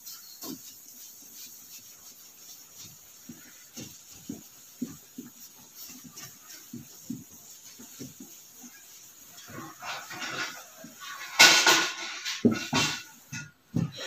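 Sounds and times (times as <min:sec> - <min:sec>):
marker squeaking on whiteboard: 0:00.0 - 0:11.0.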